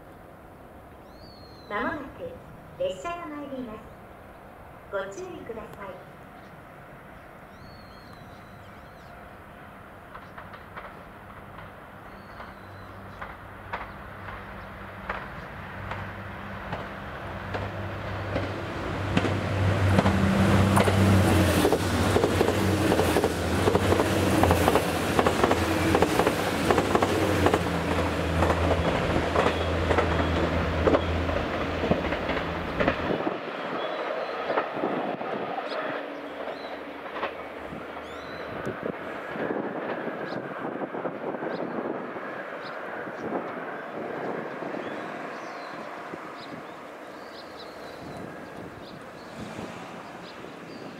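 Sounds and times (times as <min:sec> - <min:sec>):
train engine hum: 0:00.0 - 0:50.9
train rushing past: 0:00.6 - 0:50.9
wheels clattering on rails: 0:10.0 - 0:33.4.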